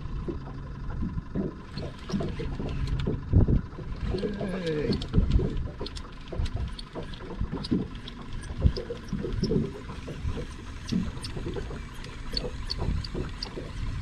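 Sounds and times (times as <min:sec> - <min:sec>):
water knocking against boat hull: 0:00.2 - 0:14.0
faint clicks: 0:04.0 - 0:14.0.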